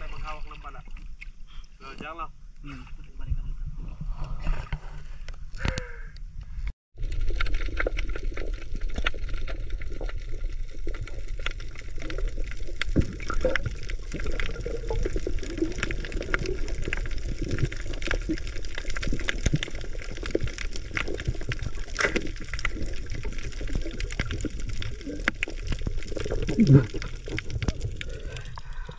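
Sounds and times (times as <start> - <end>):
water noise: 0.0 - 2.3, 7.0 - 28.9
small clicks and crackles: 7.0 - 28.9.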